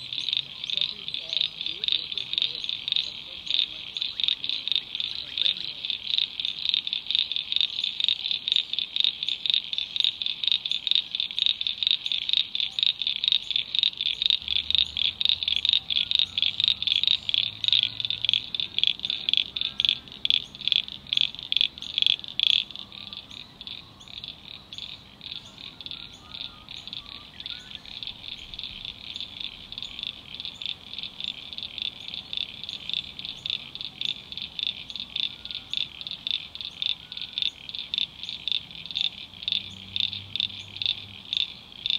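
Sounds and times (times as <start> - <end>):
frogs calling: 0.0 - 41.9.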